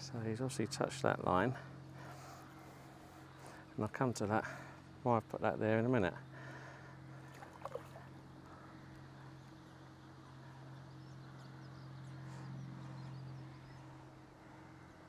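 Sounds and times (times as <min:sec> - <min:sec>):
steady low hum: 0:00.0 - 0:15.0
small birds chirping: 0:06.0 - 0:15.0.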